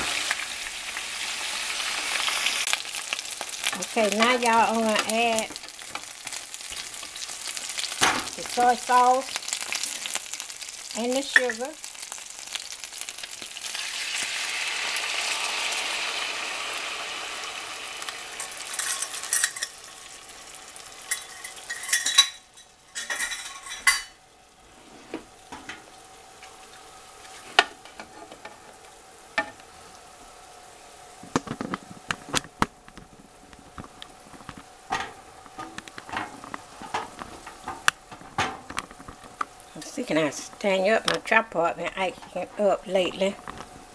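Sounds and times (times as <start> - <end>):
sauce sizzling in hot pan: 0.0 - 24.7
low frying sizzle: 0.0 - 43.9
utensil stirring in pan: 18.4 - 19.9, 20.7 - 24.1.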